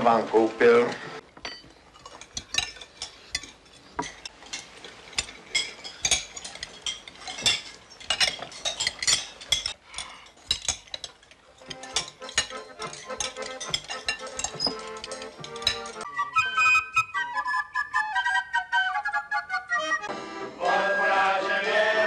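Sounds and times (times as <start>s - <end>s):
cutlery clinking on plates: 0.9s - 16.1s.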